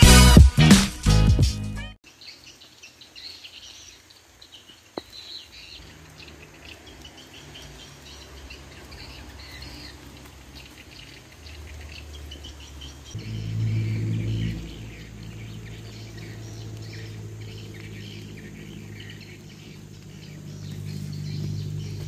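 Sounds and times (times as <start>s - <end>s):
small birds chirping: 2.0s - 22.0s
low rumbling microphone noise: 13.2s - 22.0s.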